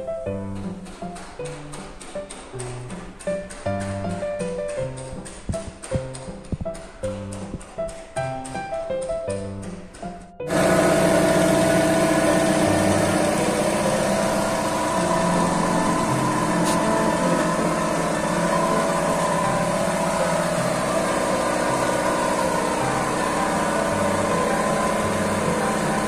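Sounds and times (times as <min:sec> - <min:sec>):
machine humming: 0:10.5 - 0:26.0.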